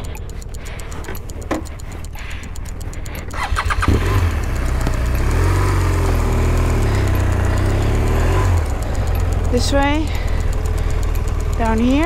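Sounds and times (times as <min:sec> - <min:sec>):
motorcycle engine running: 0:00.0 - 0:12.0
motorcycle starter cranking: 0:00.0 - 0:12.0.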